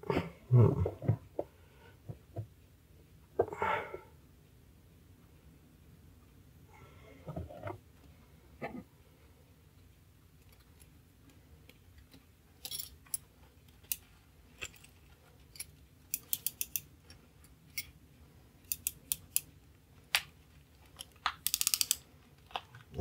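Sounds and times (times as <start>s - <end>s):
small metallic clicks and taps: 15.6s - 17.9s, 20.9s - 22.7s.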